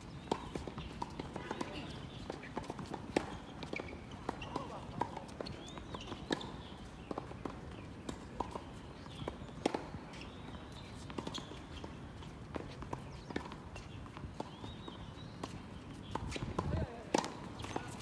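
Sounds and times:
shoes squeaking on court floor: 0.0s - 18.0s
racket hitting ball: 16.2s - 18.0s.

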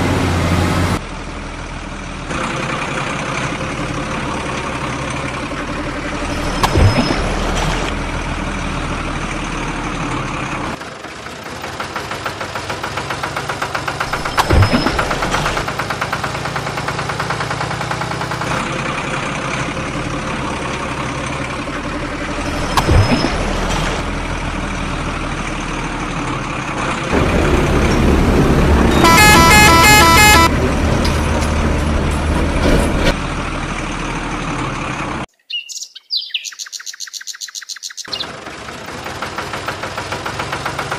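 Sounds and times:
truck engine running: 0.0s - 35.3s, 37.9s - 40.9s
multi-tone horn honking: 28.8s - 30.7s.

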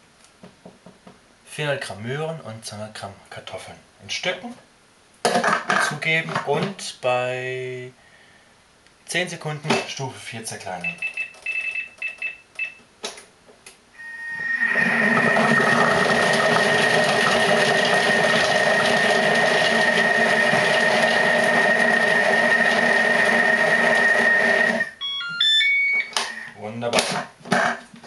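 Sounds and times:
short electronic beeps: 10.8s - 12.8s, 14.0s - 17.0s, 24.8s - 26.6s
food processor chopping vegetables: 15.2s - 24.9s.

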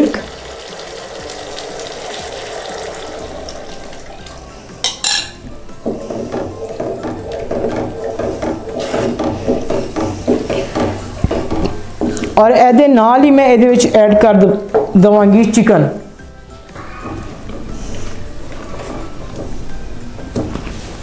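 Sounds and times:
liquid hissing into hot pan: 0.0s - 4.9s
paste sizzling in a frying pan: 0.0s - 4.9s
spatula scraping a pan: 5.8s - 12.2s.

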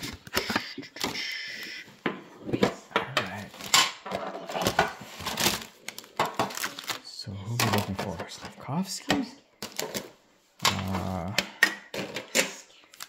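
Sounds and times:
boxes and tin clattering: 2.6s - 8.4s
packaging rustle: 4.5s - 8.1s.

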